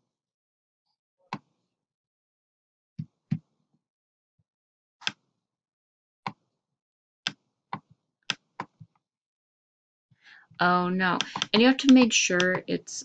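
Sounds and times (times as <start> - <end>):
computer mouse clicks: 11.2 - 12.7.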